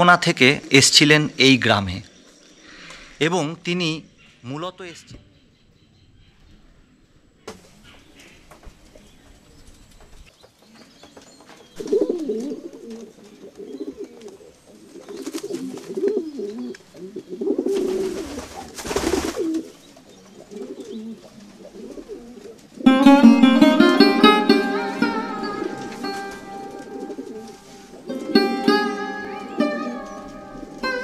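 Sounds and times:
pigeons cooing: 11.8 - 23.0, 23.6 - 31.0.

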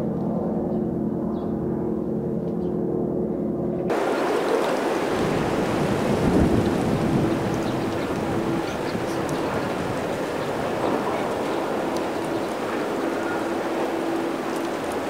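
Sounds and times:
wind buffeting microphone: 3.9 - 15.0.

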